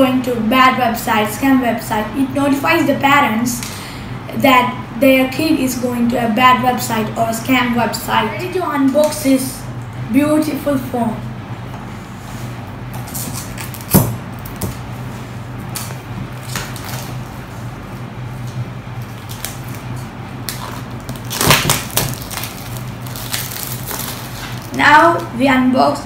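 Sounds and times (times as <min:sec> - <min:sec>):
steady low hum: 0:00.0 - 0:26.0
plastic wrap tearing and crinkling: 0:13.1 - 0:14.8, 0:15.7 - 0:17.4, 0:19.0 - 0:24.8.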